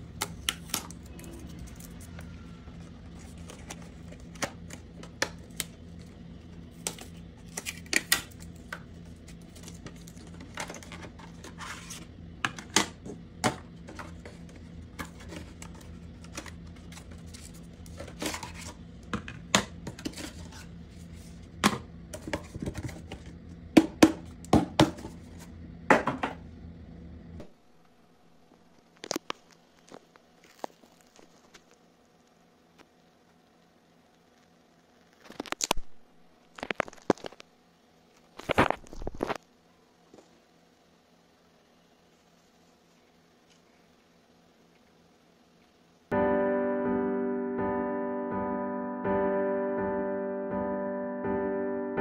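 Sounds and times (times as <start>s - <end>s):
steady low hum: 0.0s - 52.0s
plastic trays knocking on table: 25.9s - 26.4s.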